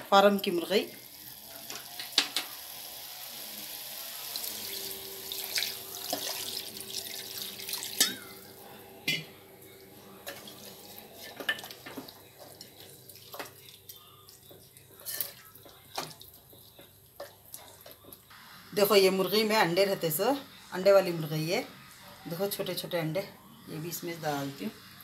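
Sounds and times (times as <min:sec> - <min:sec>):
water pouring and splashing: 0:04.3 - 0:08.3.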